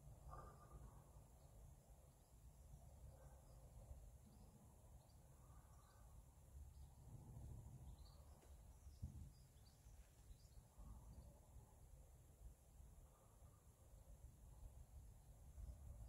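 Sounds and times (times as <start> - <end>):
faint low rumble: 0.0 - 16.0
faint bird chirps: 0.2 - 11.6.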